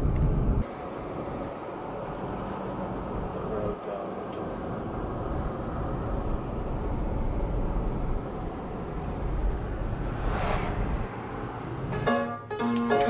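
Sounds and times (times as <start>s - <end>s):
road and engine rumble in car: 0.0s - 12.4s
passing vehicle whoosh: 4.8s - 12.5s.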